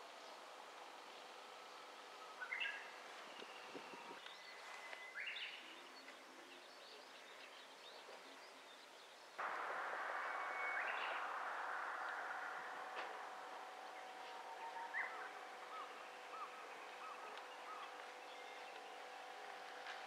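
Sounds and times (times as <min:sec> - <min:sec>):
birds chirping: 0:00.2 - 0:20.0
steady hiss: 0:09.2 - 0:20.0.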